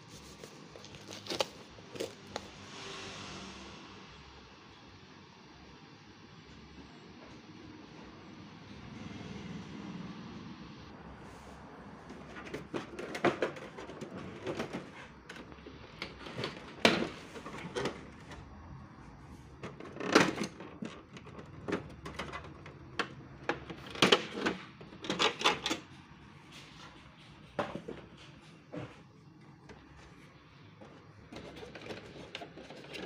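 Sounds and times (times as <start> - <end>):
plastic printer parts clicking: 12.1 - 18.4, 19.5 - 25.9, 31.3 - 33.0.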